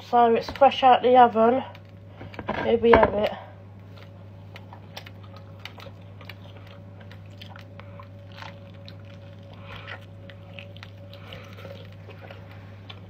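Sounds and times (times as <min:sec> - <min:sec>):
steady low hum: 0:00.0 - 0:13.0
person chewing: 0:03.8 - 0:13.0.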